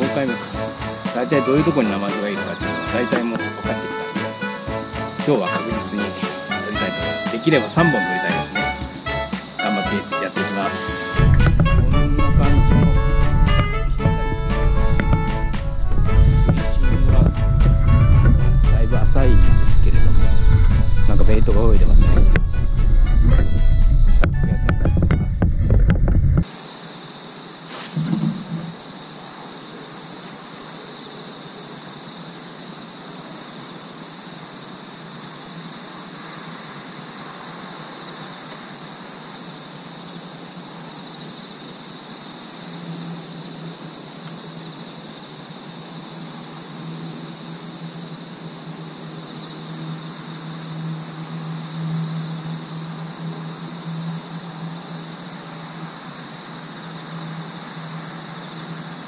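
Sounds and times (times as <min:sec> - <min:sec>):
night insects trilling: 0:00.0 - 0:59.0
low steady hum: 0:11.2 - 0:26.5.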